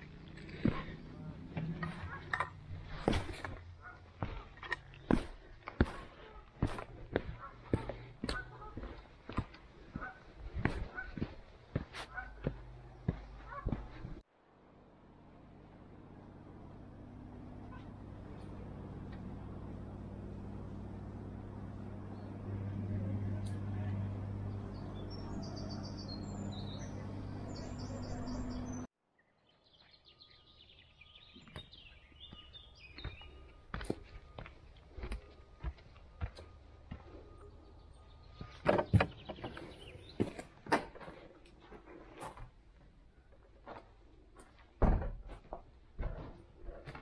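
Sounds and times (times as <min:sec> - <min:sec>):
low engine drone: 0:00.0 - 0:11.1, 0:12.1 - 0:28.9
footsteps on gravel: 0:00.3 - 0:14.2, 0:32.3 - 0:37.4.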